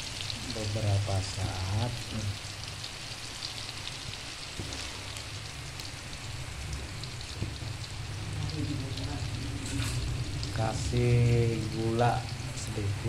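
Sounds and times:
food sizzling in a wok: 0.0s - 13.0s
low hum: 4.6s - 13.0s.

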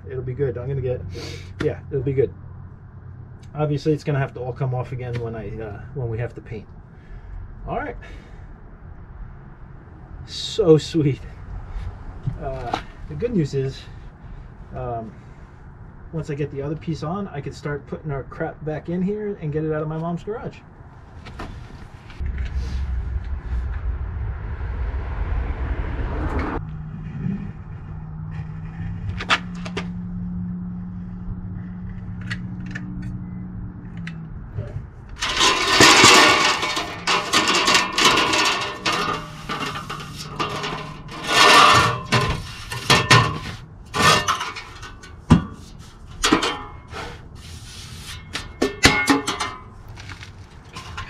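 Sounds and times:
low steady hum: 20.7s - 51.0s
metal sheet scraping and rattling: 21.3s - 29.9s, 34.6s - 51.0s.

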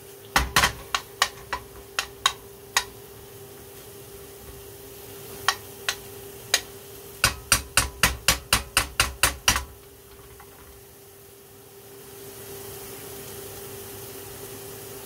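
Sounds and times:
faint steady hum: 0.0s - 15.0s
metal spoon tapping frying pan: 0.3s - 3.0s, 5.4s - 10.8s.

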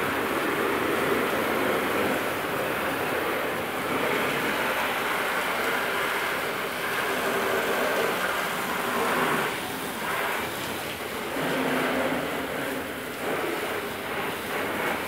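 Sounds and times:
hose spraying water on car: 0.0s - 15.0s.

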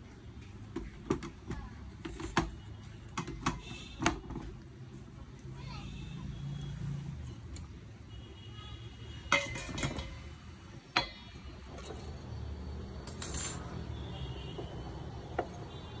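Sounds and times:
metal clinks and knocks: 9.3s - 12.3s, 13.0s - 13.9s.

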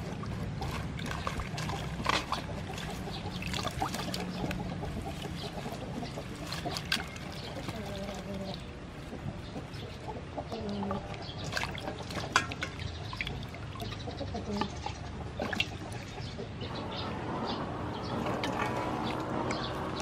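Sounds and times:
water splashing in a metal bowl: 0.0s - 8.7s, 11.1s - 16.2s, 18.0s - 20.0s
chickens clucking: 0.0s - 20.0s.

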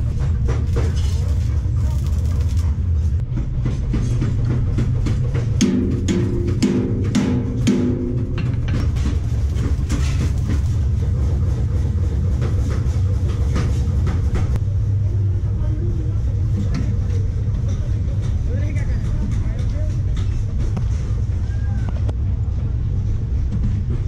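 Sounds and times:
steady low hum: 0.0s - 24.0s
welding arc crackle: 0.6s - 2.8s, 9.2s - 11.0s.

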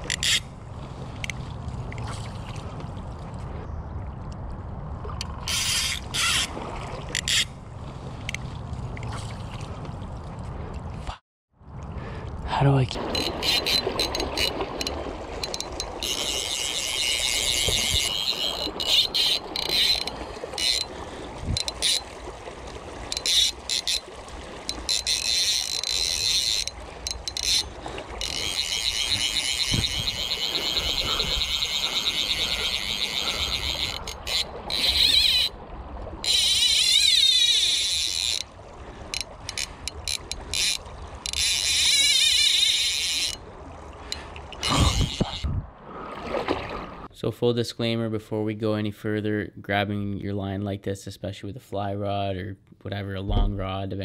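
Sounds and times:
fishing reel ratcheting: 0.0s - 0.5s, 5.5s - 6.5s, 7.1s - 7.5s, 13.0s - 20.9s, 21.5s - 22.1s, 23.1s - 35.5s, 36.2s - 38.5s, 39.1s - 43.4s, 44.1s - 45.5s.

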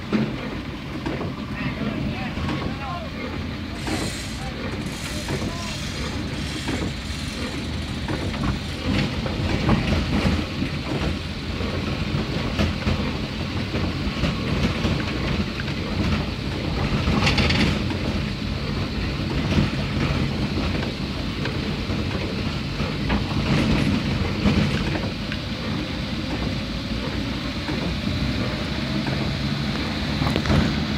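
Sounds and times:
engine and tyres running: 0.0s - 30.9s
windscreen wipers sweeping: 1.0s - 30.9s
rain hitting windscreen: 1.1s - 18.2s.

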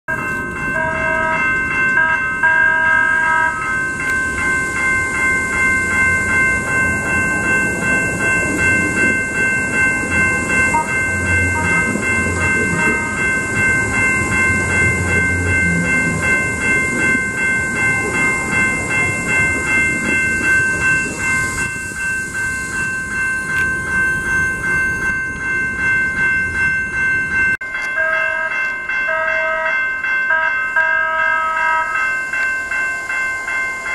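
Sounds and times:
crossing warning bells ringing: 0.1s - 33.9s
tram rumble and wheel noise: 0.1s - 33.9s.

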